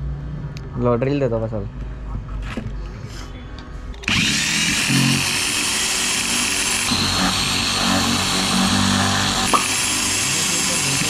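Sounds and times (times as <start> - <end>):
electric drill boring: 4.0 - 11.0.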